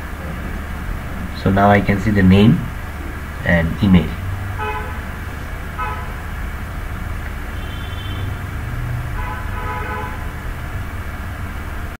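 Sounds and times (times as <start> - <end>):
road traffic rumble: 0.0 - 11.9
vehicle horn toots: 4.5 - 6.3, 7.4 - 10.6.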